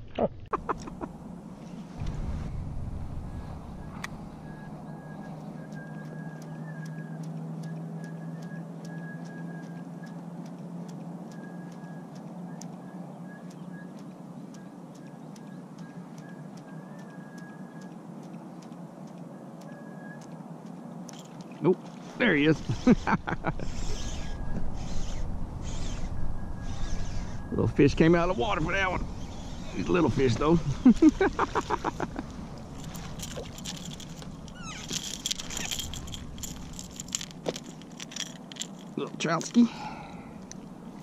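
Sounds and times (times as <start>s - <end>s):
low steady rumble: 0.0s - 5.6s, 23.1s - 39.0s
steady low rush: 0.6s - 5.6s, 23.4s - 41.0s
fishing reel clicking: 22.6s - 27.4s, 32.8s - 39.6s.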